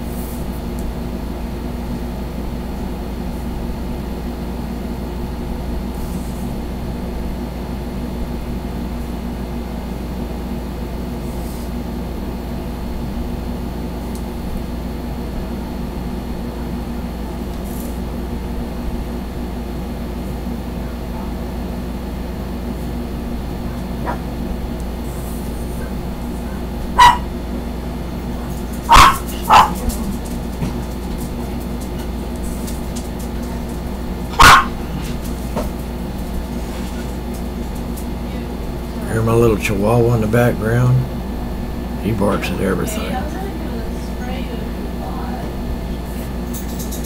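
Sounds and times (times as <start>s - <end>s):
steady low hum: 0.0s - 47.0s
small dog barking: 24.0s - 24.3s, 26.5s - 27.3s, 28.8s - 30.0s, 34.3s - 34.9s.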